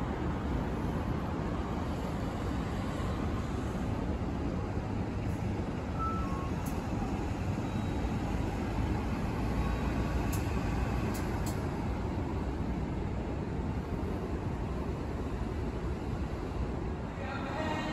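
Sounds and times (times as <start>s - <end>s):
bus engine running: 0.0s - 17.1s
low street traffic noise: 0.0s - 17.9s
short faint high beeps: 5.9s - 6.7s, 7.6s - 8.2s.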